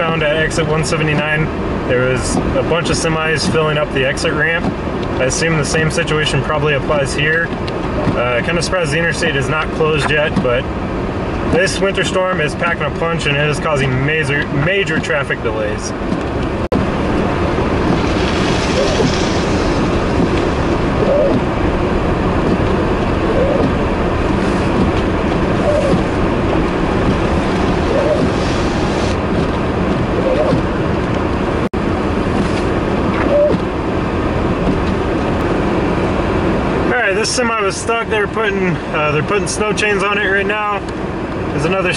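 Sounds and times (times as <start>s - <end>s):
vehicle and road noise: 0.0s - 41.9s
wind: 0.0s - 41.9s.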